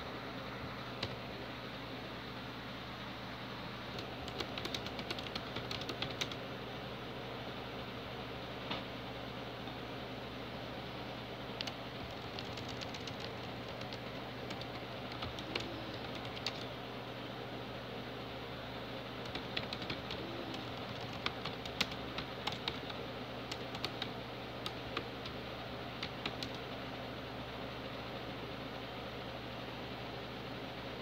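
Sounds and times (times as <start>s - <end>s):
low hum and hiss: 0.0s - 31.0s
keyboard typing clicks: 3.9s - 6.4s, 11.6s - 16.7s, 19.2s - 25.4s, 26.0s - 26.6s.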